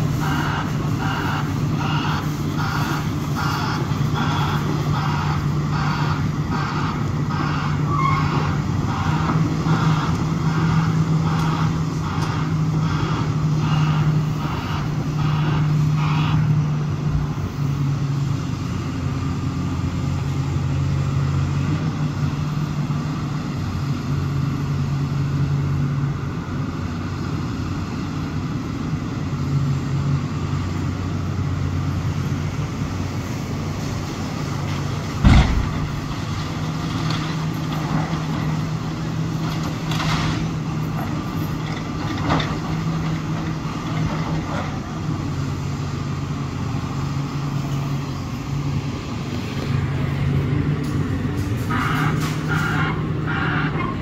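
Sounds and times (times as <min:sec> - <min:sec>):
excavator diesel engine running: 0:00.0 - 0:54.0
loud bang: 0:35.2 - 0:36.4
demolition crunches and knocks: 0:35.2 - 0:38.3.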